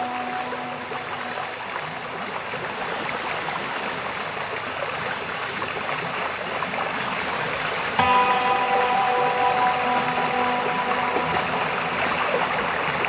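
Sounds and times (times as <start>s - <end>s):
held music notes: 0.0s - 2.3s, 8.0s - 13.0s
flowing water babbling: 0.0s - 13.0s.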